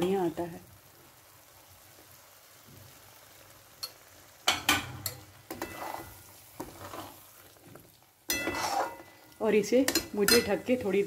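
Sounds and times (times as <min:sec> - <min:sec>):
milk sizzling in a pan: 0:00.0 - 0:11.0
spatula scraping a pan: 0:04.6 - 0:10.7.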